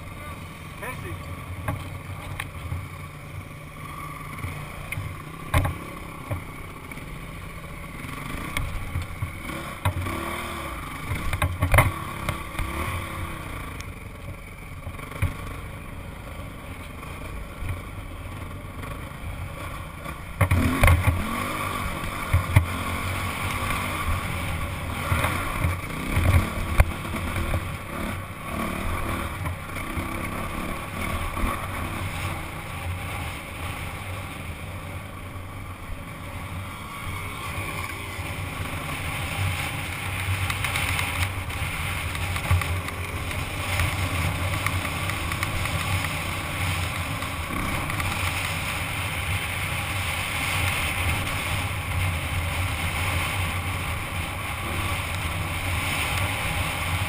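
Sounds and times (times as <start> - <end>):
dirt bike engine running: 0.0 - 57.0.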